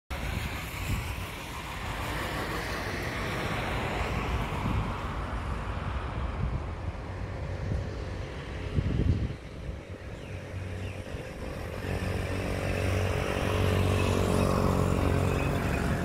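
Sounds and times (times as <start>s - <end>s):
wind buffeting microphone: 0.1s - 16.0s.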